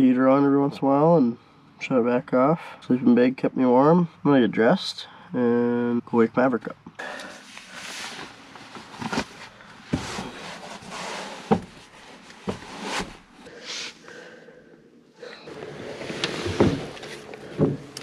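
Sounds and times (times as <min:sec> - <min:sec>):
clothes and bedding rustling: 0:07.3 - 0:13.7, 0:15.5 - 0:18.0
sharp knocks and clunks: 0:16.5 - 0:18.0.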